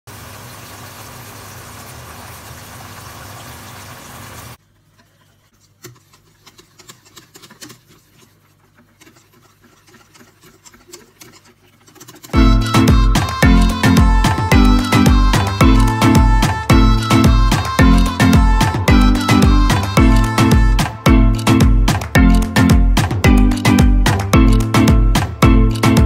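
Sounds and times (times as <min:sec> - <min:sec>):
chicken deep-frying in oil: 0:00.0 - 0:04.6
whisk stirring in metal bowl: 0:05.1 - 0:12.4
music: 0:12.4 - 0:26.0.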